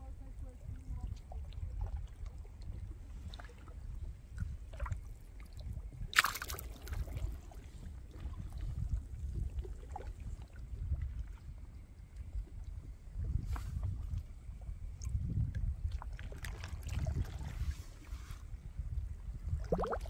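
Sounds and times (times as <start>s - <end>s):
low rumbling water movement: 0.0s - 20.0s
short water splash: 6.0s - 7.3s.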